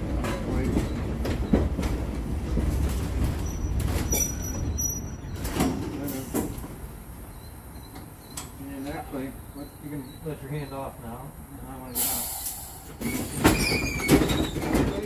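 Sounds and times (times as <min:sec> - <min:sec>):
wheels clacking over rail joints: 0:00.0 - 0:10.8, 0:12.0 - 0:15.0
trolley car wheels rumbling: 0:00.0 - 0:15.0
high wheel squeal: 0:03.4 - 0:05.5, 0:12.0 - 0:15.0.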